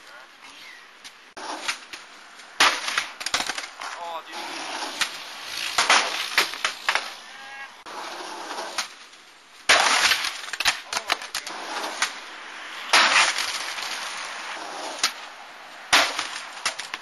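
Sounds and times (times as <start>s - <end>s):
skateboard wheels rolling: 1.0s - 17.0s
skateboard landing on concrete: 1.4s - 7.2s, 9.6s - 12.2s, 12.9s - 14.0s, 15.9s - 17.0s.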